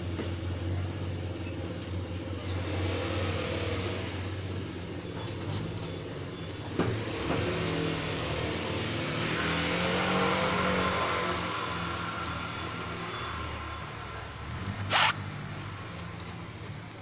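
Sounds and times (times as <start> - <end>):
vehicle engine running: 0.0 - 9.3.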